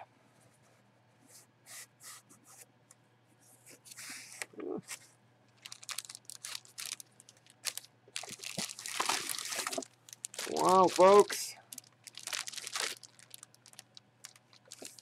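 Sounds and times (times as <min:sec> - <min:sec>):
plastic bag crinkling: 0:05.6 - 0:15.0.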